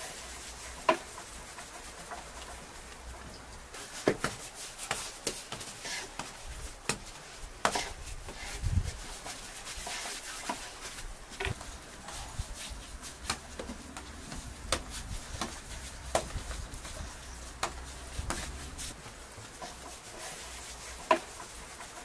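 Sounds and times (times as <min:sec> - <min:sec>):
dough patting on wooden board: 0:03.8 - 0:08.5, 0:12.6 - 0:22.0.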